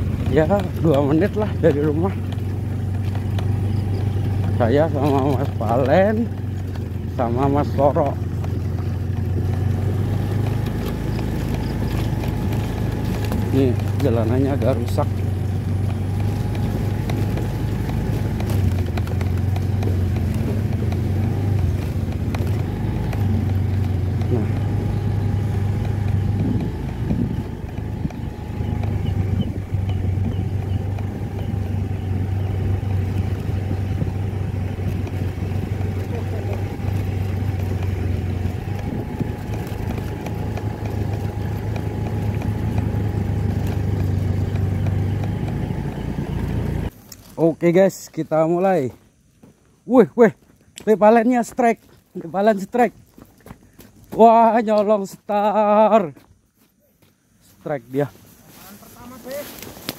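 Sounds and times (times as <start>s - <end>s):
knocks and rattles: 0.0s - 46.9s
sharp clicks: 0.0s - 47.3s
motorcycle engine running: 0.0s - 49.6s.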